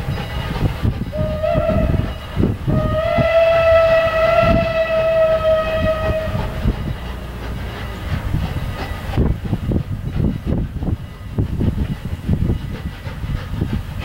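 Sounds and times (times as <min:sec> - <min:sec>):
locomotive exhaust chuffing: 0:00.0 - 0:14.0
steam whistle blast: 0:01.1 - 0:06.8.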